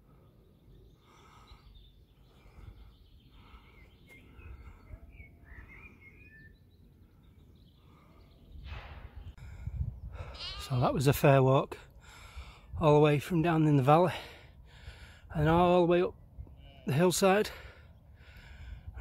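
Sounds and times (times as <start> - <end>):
person breathing hard: 0.0 - 5.0, 7.7 - 10.6, 11.8 - 12.8, 14.1 - 15.3, 17.5 - 19.0
small birds chirping: 0.0 - 19.0.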